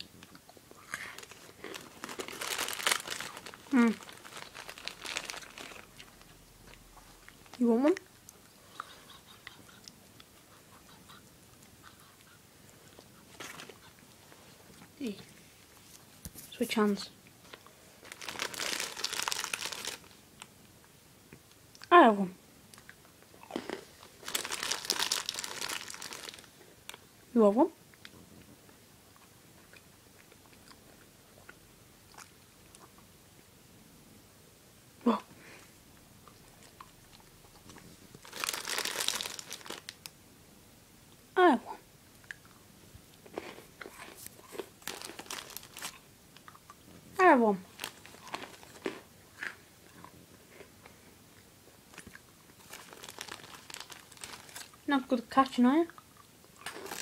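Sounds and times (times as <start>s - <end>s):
dog crunching chocolate: 0.0s - 12.4s, 17.5s - 20.2s, 22.8s - 27.0s, 36.6s - 40.1s, 43.2s - 46.8s, 47.7s - 50.2s, 51.9s - 54.9s, 55.9s - 57.0s.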